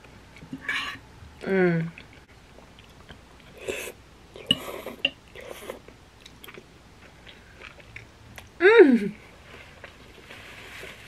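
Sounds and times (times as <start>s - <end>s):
person chewing: 1.9s - 8.5s
person slurping noodles: 3.5s - 5.8s.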